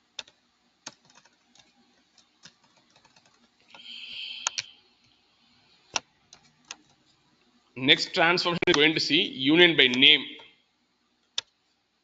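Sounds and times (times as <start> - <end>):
keyboard keys clicking: 0.2 - 4.7
short hiss: 3.8 - 4.8.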